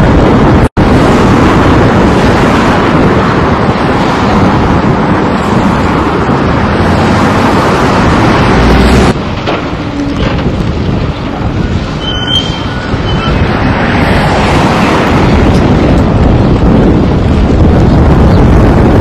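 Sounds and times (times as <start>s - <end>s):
excavator diesel engines: 3.4s - 17.0s.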